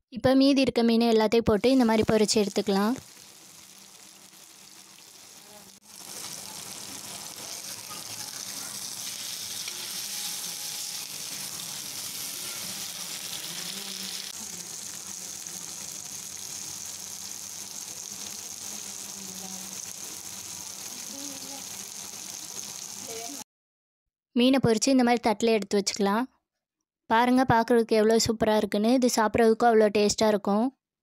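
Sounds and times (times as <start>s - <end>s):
fish sizzling in oil: 1.6s - 23.4s.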